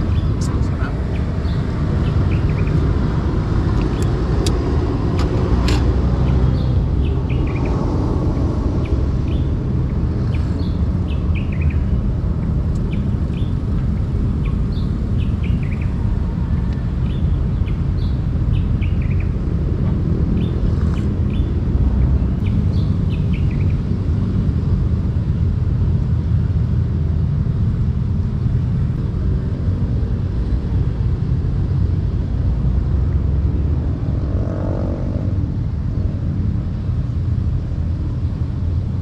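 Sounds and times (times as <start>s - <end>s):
small birds chirping: 0.0s - 4.6s, 6.2s - 19.5s, 20.2s - 24.0s
low outdoor rumble: 0.0s - 39.0s.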